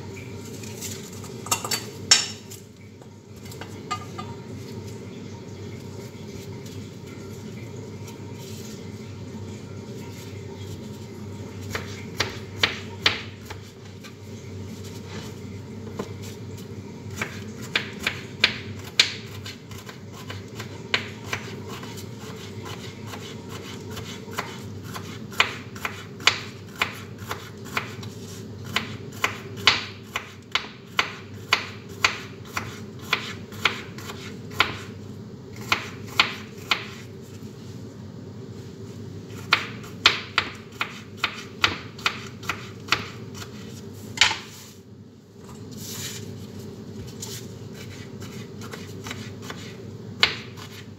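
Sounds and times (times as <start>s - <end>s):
knife chopping on cutting board: 11.7s - 13.7s, 17.1s - 34.9s, 35.6s - 37.0s, 39.3s - 43.6s, 47.8s - 50.9s.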